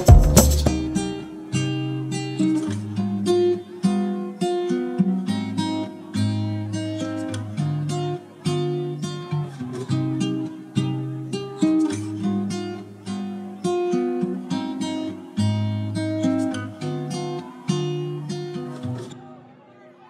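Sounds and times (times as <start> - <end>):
acoustic guitar strumming chords: 0.0 - 19.2.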